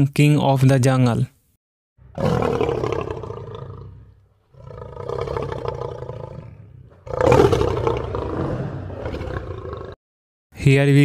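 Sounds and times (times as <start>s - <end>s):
lion roaring: 2.1s - 10.0s.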